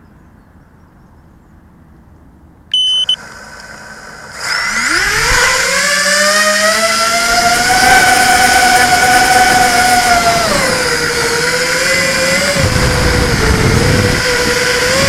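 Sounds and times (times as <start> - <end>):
loud electronic beep: 2.7 - 3.2
drone motors rising whine: 2.8 - 15.0.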